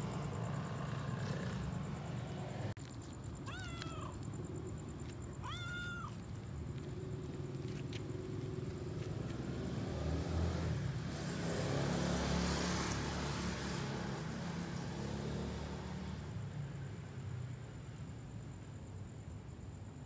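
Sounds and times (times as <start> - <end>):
car passing by: 7.9 - 16.7.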